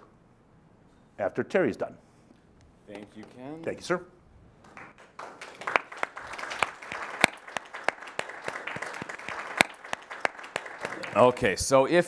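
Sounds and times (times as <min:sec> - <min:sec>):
audience applauding: 0:04.6 - 0:11.6.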